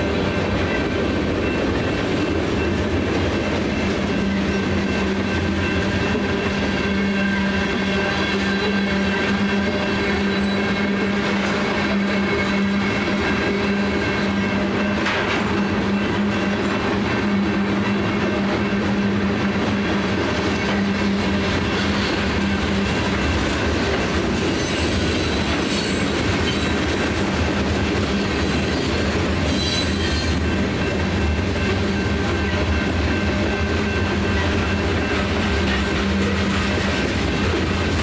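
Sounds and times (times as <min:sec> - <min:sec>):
train wheels rumbling on rail: 0:00.0 - 0:38.0
high wheel squeal: 0:03.7 - 0:15.0, 0:20.4 - 0:23.4, 0:24.0 - 0:27.0, 0:28.0 - 0:31.0.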